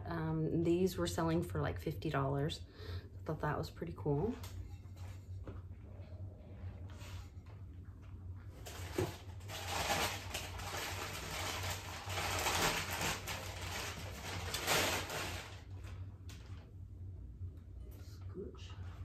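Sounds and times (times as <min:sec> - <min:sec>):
newspaper rustling and crinkling: 0:08.5 - 0:16.0.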